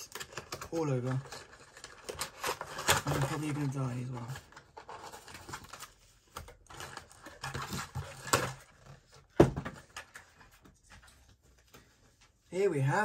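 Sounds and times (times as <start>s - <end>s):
cardboard and paper packaging rustling: 0.0s - 12.5s.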